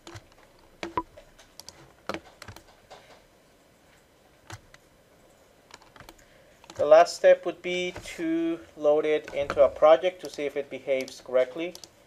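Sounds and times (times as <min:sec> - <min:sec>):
mouse and keyboard clicking: 0:00.0 - 0:03.2, 0:05.7 - 0:06.9, 0:09.2 - 0:12.0.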